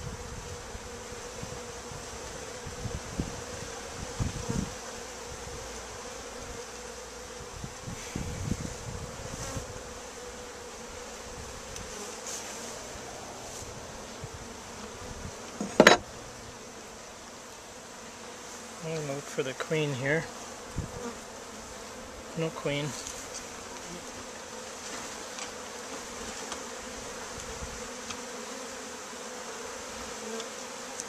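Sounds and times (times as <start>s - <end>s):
honey bees buzzing: 0.0s - 31.0s
sharp knock: 15.6s - 16.1s.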